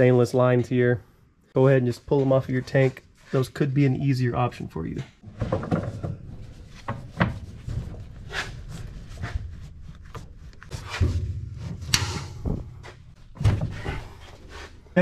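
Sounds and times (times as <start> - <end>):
rubber hose rubbing and scuffing: 1.8 - 3.8, 6.4 - 15.0.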